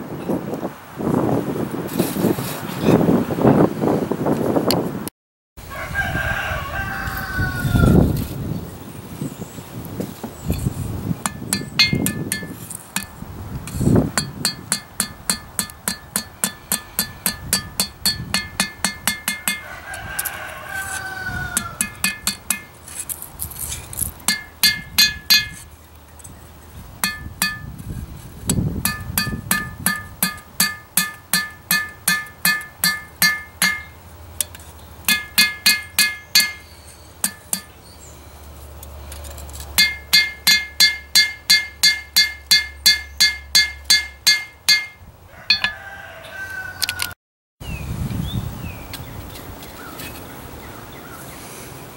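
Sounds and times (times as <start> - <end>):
rooster crowing: 5.6 - 8.2, 19.4 - 22.3, 45.3 - 47.2
hammer blows ringing an anvil: 11.3 - 13.1, 14.2 - 19.6, 21.8 - 22.7, 24.3 - 25.6, 27.0 - 27.7, 28.8 - 34.0, 35.1 - 37.7, 39.8 - 45.8.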